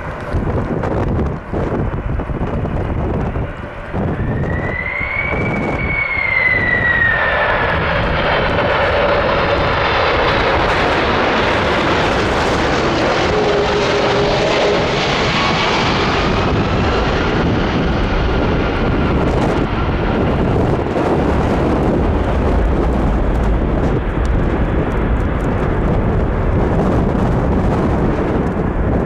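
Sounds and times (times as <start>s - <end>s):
jet engines whining: 0.0s - 29.0s.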